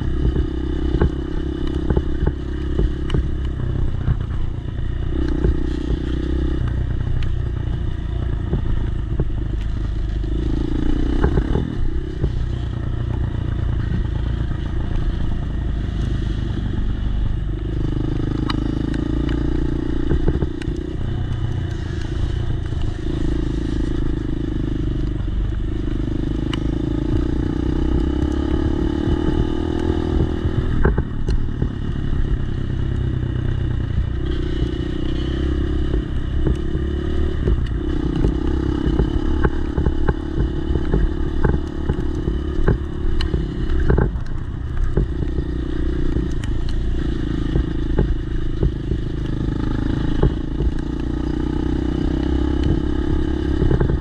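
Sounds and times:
dirt bike engine revving: 10.1 - 12.6, 13.3 - 32.6, 34.1 - 54.0.

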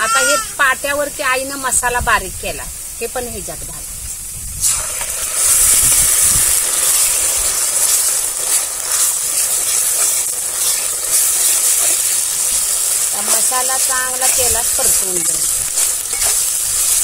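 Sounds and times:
paste sizzling in hot oil: 3.0 - 17.0.

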